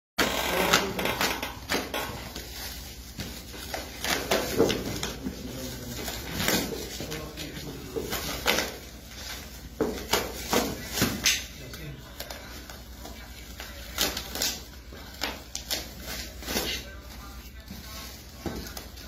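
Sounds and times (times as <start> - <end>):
plastic crinkling and tearing: 0.2 - 19.0
handling knocks and rustles: 1.2 - 12.4.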